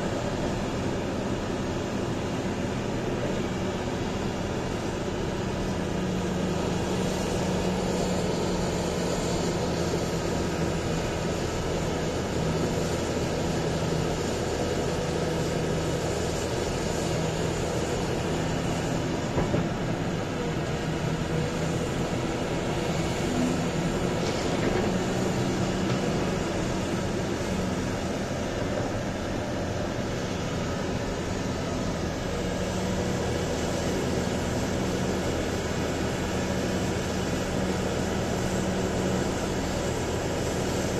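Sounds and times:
large diesel engines droning: 0:00.0 - 0:40.9.

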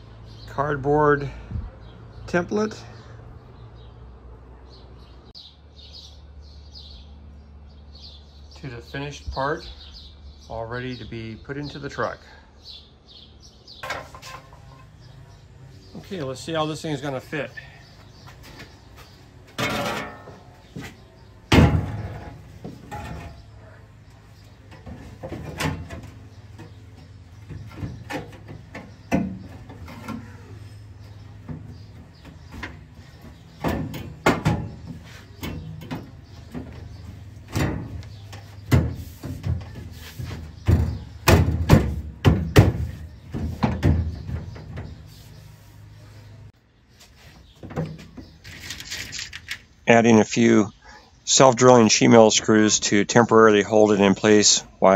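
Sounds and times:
metal panel clanking and scraping: 0:13.8 - 0:15.0, 0:19.5 - 0:45.3.

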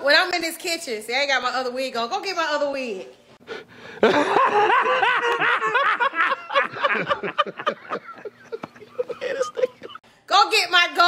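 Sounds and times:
man laughing: 0:03.8 - 0:10.0.

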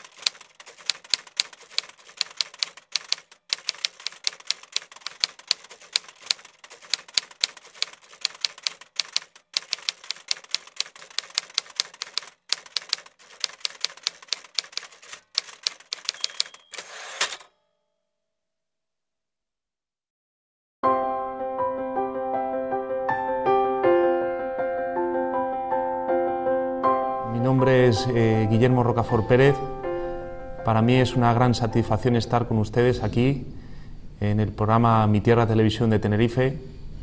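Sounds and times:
typewriter carriage sweep: 0:00.0 - 0:17.5
typewriter keys clattering: 0:00.0 - 0:17.5
typewriter bell ring: 0:00.0 - 0:17.7.

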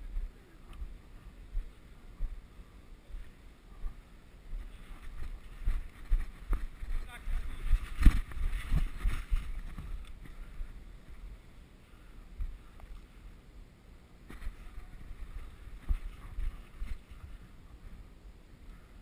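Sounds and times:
footfalls on dirt: 0:04.6 - 0:10.0
wind buffeting microphone: 0:05.0 - 0:10.5.

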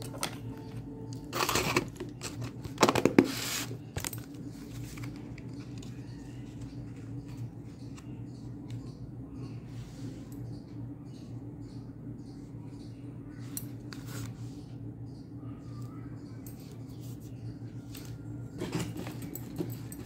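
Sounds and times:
ceiling fan hum: 0:00.0 - 0:20.0.

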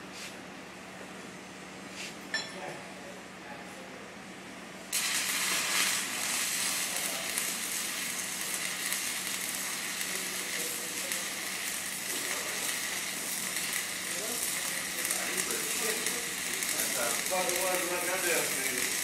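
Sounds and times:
welding arc crackling and sizzling: 0:04.9 - 0:19.0.

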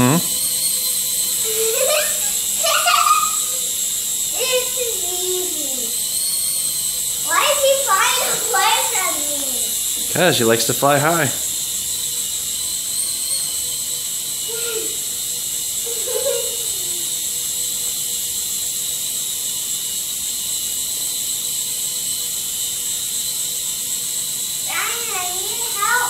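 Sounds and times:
toy motor high-pitched buzz: 0:00.0 - 0:26.0.

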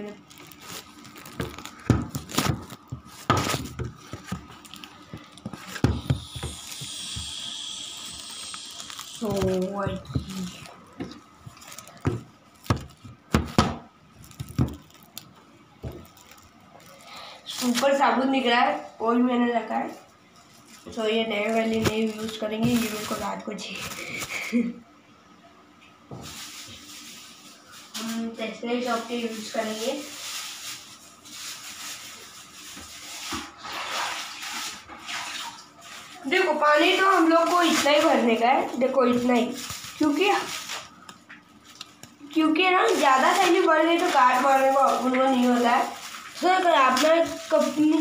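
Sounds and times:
tap water splashing into plastic bag: 0:00.3 - 0:07.4, 0:08.1 - 0:16.4, 0:32.8 - 0:36.0, 0:42.8 - 0:48.0
objects knocking on hard surface: 0:05.5 - 0:06.6, 0:12.0 - 0:13.8.

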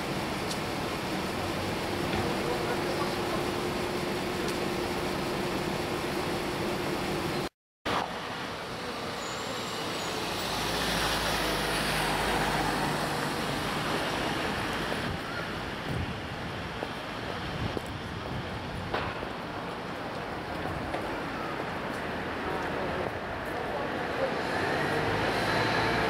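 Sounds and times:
road traffic rumble: 0:00.0 - 0:26.0
vehicle passing close by: 0:10.2 - 0:15.0, 0:24.2 - 0:26.0.

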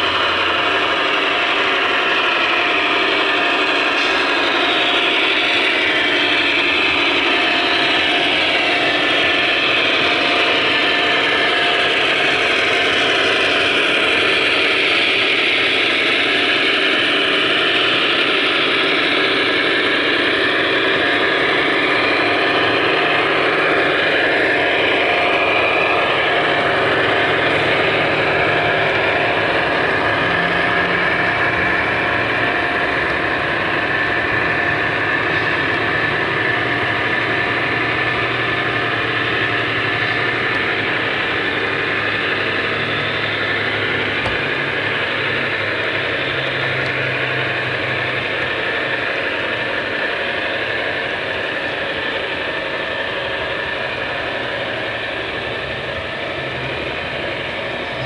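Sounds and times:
model train diesel engine drone: 0:00.0 - 0:58.0.

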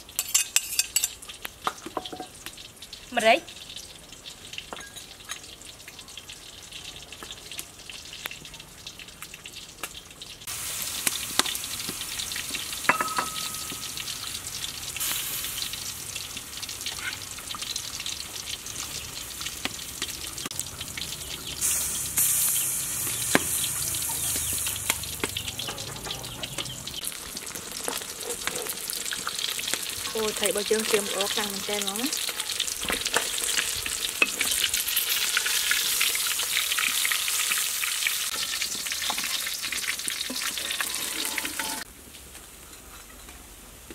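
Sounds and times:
fish frying in hot oil: 0:00.0 - 0:43.9
ladle stirring and clinking in pot: 0:00.2 - 0:01.2, 0:12.9 - 0:13.9, 0:40.2 - 0:41.9.

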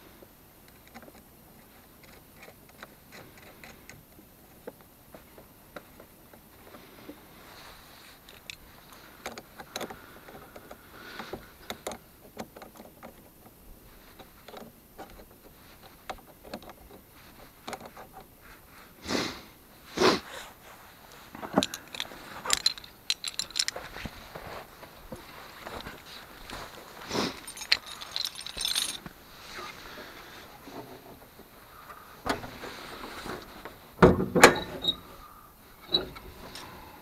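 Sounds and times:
rustling: 0:00.2 - 0:34.0
rustling crunches: 0:04.5 - 0:34.0
scraping: 0:20.2 - 0:33.7
handling clicks: 0:21.5 - 0:24.2.

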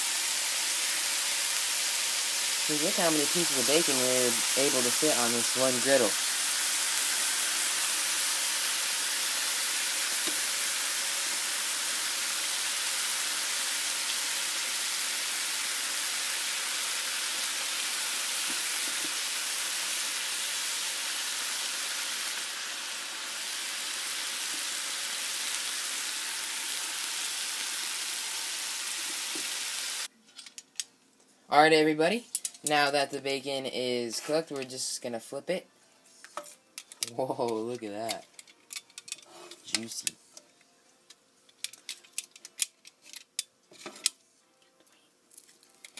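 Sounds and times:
bacon sizzling on a griddle: 0:00.0 - 0:30.1.

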